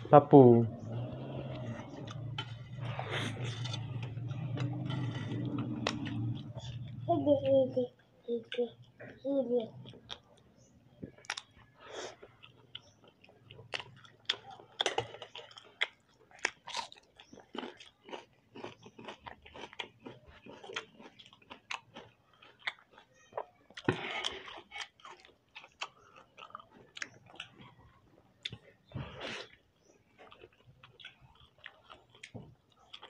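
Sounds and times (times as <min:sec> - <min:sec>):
chewing and biting: 0:09.8 - 0:33.0.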